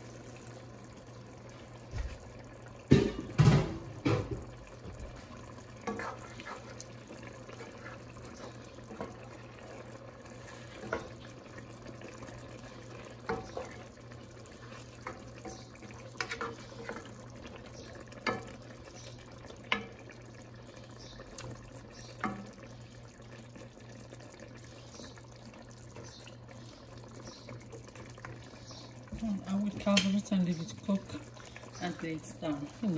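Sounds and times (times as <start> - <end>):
liquid sloshing in pot: 1.4 - 20.1.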